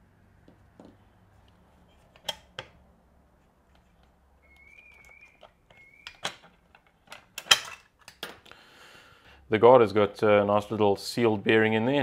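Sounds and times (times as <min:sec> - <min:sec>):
plastic and metal clicks: 0:03.7 - 0:08.5
faint whistle-like squeak: 0:04.4 - 0:06.4.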